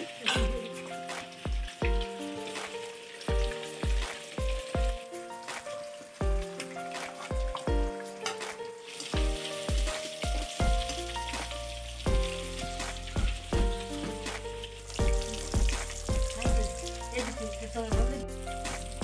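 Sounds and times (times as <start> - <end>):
background music with beat: 0.0 - 19.0
fish sizzling in hot oil: 0.0 - 19.0.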